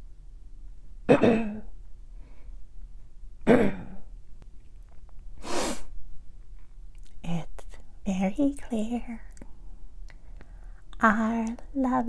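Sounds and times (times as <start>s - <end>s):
person clearing throat: 1.1s - 1.7s, 3.4s - 4.1s
breathy exhale: 10.3s - 10.8s.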